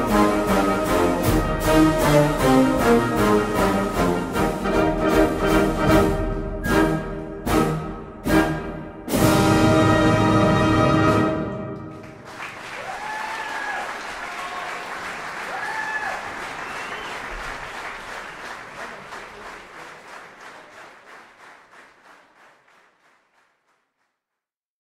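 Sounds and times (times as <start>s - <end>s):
audience applauding: 11.8s - 24.2s.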